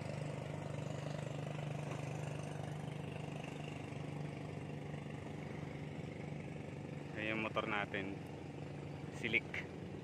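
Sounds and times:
small engine idling: 0.0 - 10.0.

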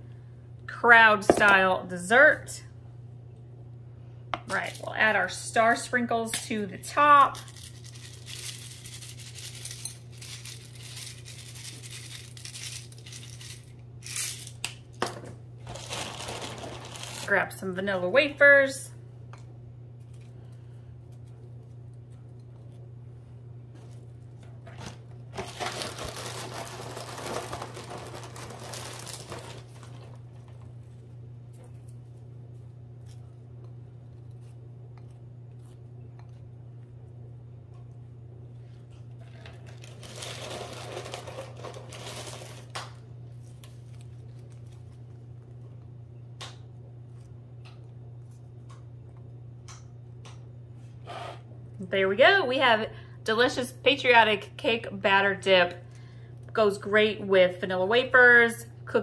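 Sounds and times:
steady low hum: 0.0 - 59.0
plastic packaging crinkling: 7.3 - 14.7, 15.6 - 17.4, 24.7 - 30.7, 39.2 - 45.2
cookies rustling in box: 7.4 - 13.8, 15.6 - 17.4, 24.7 - 31.0, 39.2 - 45.2.

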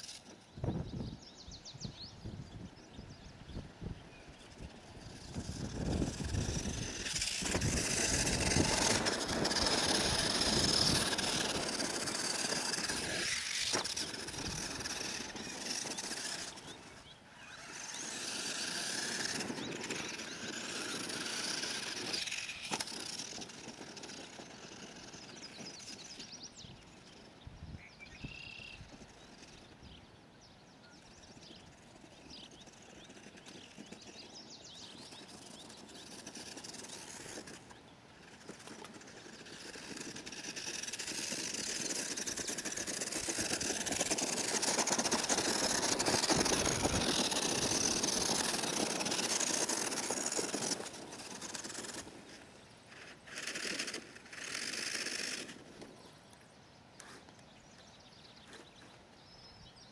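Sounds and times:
electric motor and gears whining: 4.4 - 26.4, 34.8 - 55.9.

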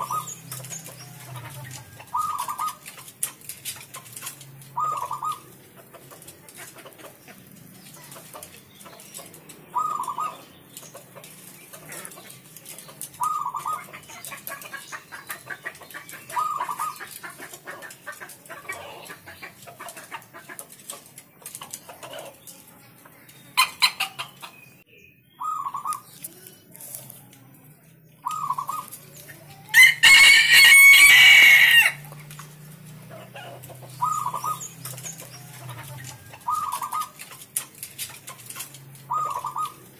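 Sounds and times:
dove cooing: 0.0 - 20.5, 25.4 - 26.2, 28.2 - 32.0, 32.9 - 39.9
rooster crowing: 29.7 - 32.1.

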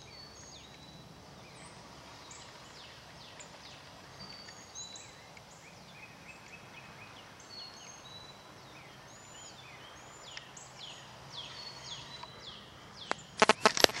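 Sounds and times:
small birds chirping and whistling: 0.0 - 14.0.

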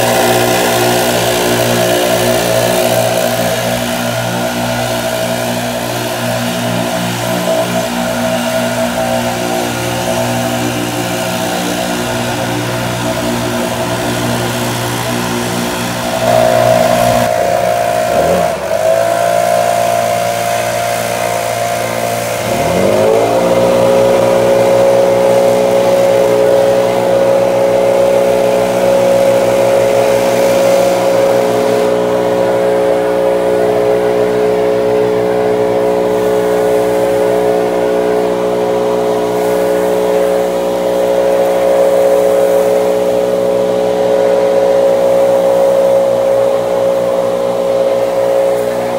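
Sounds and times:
leaf blower engine running: 0.0 - 48.9.

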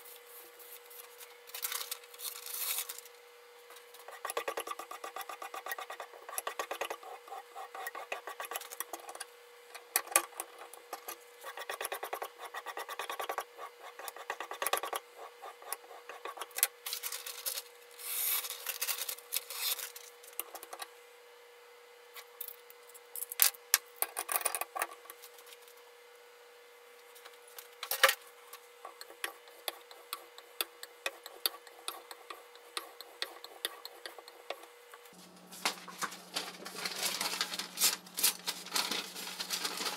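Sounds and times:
paper rustling: 0.1 - 3.1, 35.1 - 39.9.

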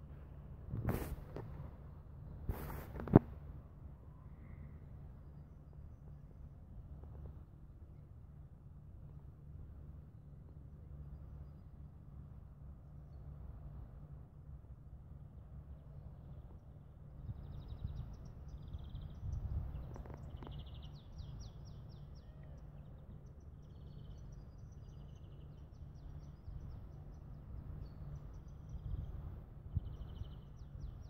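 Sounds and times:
wind buffeting microphone: 0.6 - 3.5, 17.2 - 21.3, 28.4 - 31.0
songbirds trilling and chirping: 16.2 - 31.0.

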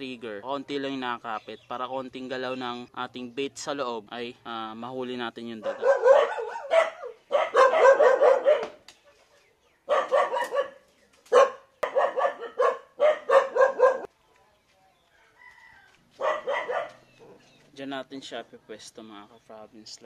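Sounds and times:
dog barking rapidly: 5.6 - 8.8, 9.9 - 14.1, 16.2 - 17.4.

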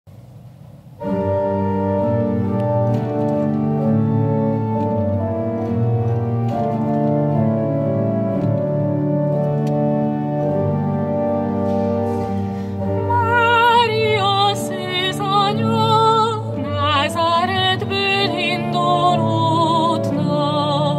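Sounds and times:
pipe organ playing hymn chords: 0.9 - 20.9
woman singing with vibrato: 12.9 - 20.9.

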